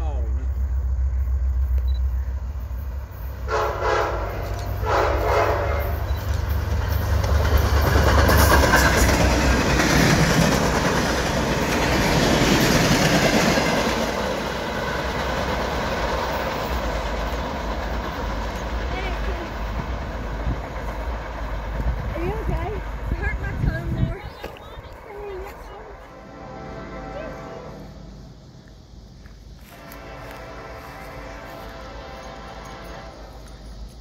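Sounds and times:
locomotive engine running: 0.0 - 34.0
wheels clattering on rail: 2.8 - 26.0, 28.6 - 34.0
train horn blasts: 3.5 - 6.2, 25.2 - 28.4, 29.6 - 33.8.

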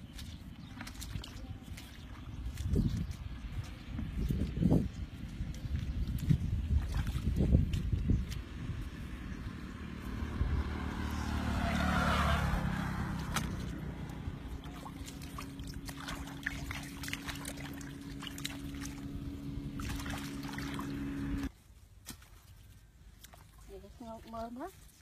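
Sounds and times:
water pouring and splashing: 0.0 - 3.7, 12.9 - 21.5
small engine running: 9.1 - 21.5.

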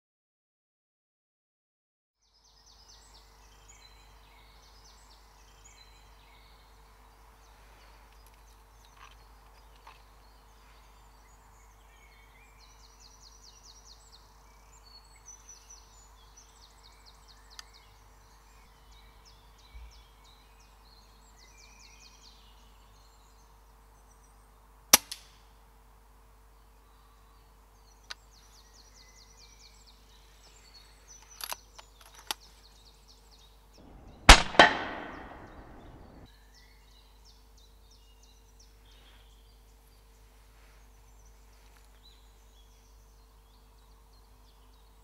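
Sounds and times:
songbirds trilling: 2.2 - 45.0
air rifle shot: 33.8 - 36.3.

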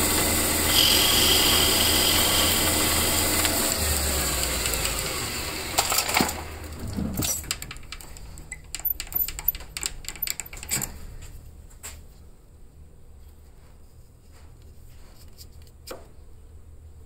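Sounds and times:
metal lathe running: 0.0 - 6.8.

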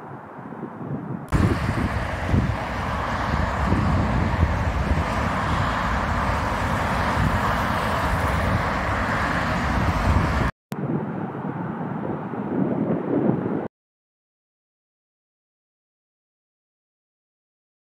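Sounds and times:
wind buffeting microphone: 0.0 - 13.7
wind rumble: 0.0 - 13.7
cars and truck passing at speed: 1.3 - 10.6.

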